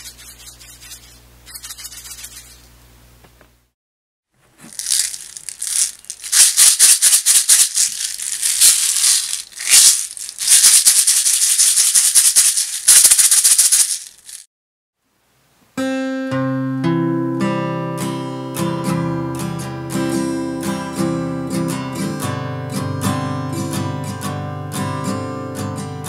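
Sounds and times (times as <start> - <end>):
bbs rattling in plastic bottle: 4.6 - 14.5.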